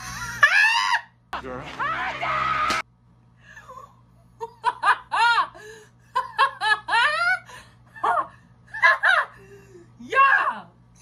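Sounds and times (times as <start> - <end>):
woman laughing loudly: 4.4 - 9.4.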